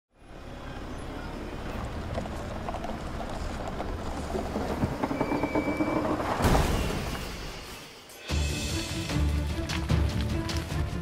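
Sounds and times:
construction machine engine rumbling: 0.2s - 6.4s.

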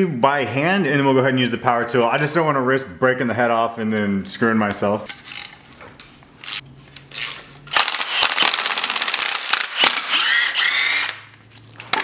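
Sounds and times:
impact wrench hammering: 7.7s - 11.2s.

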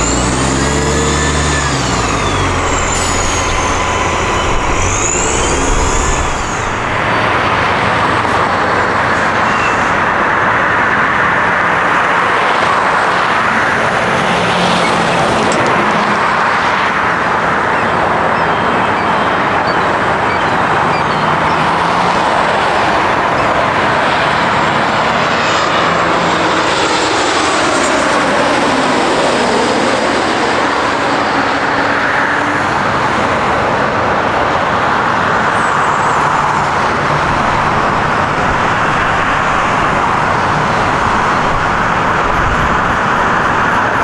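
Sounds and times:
loud rushing jet noise: 0.0s - 18.4s
jet turbofans whining: 0.0s - 44.0s.

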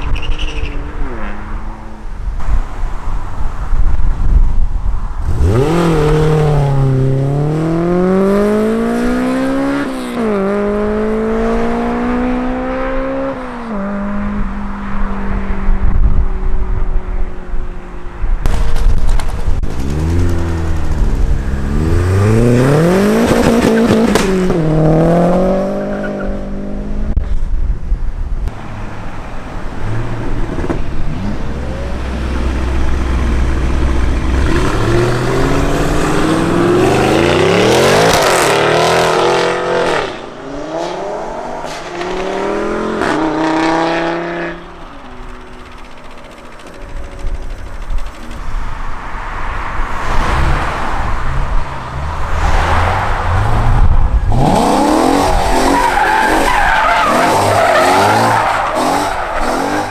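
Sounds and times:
car engine revving: 5.2s - 14.3s, 19.6s - 27.1s, 29.8s - 48.5s, 50.0s - 59.9s
car engines accelerating hard: 5.2s - 15.0s, 19.6s - 27.1s, 28.7s - 59.9s
sharp exhaust cracks: 44.6s - 48.6s.

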